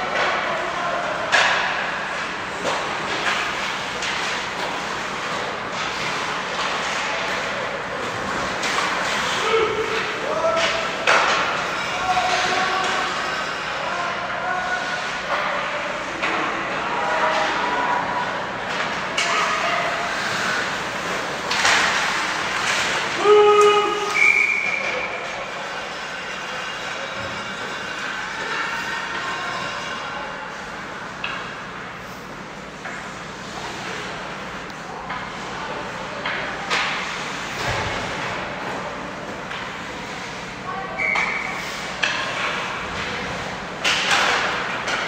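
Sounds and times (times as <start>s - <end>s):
loud shout: 23.1s - 24.8s
hockey sticks and puck knocking: 43.8s - 45.0s.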